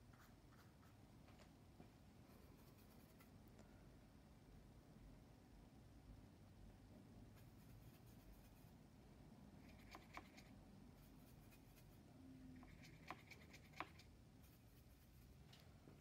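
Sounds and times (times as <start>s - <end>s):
paintbrush scrubbing and tapping: 12.6s - 15.7s.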